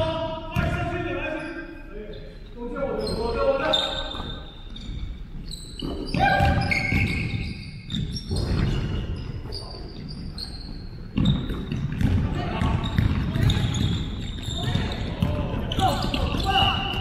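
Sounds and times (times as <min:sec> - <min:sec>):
sneakers squeaking: 0:00.0 - 0:17.0
basketball dribbling on wood floor: 0:11.2 - 0:17.0
players calling out: 0:12.2 - 0:17.0.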